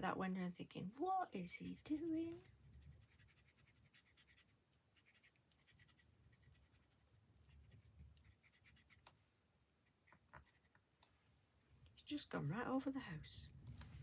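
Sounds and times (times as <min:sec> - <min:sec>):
marker tip scratching on card: 0:01.6 - 0:07.0, 0:07.6 - 0:09.2, 0:09.8 - 0:10.7.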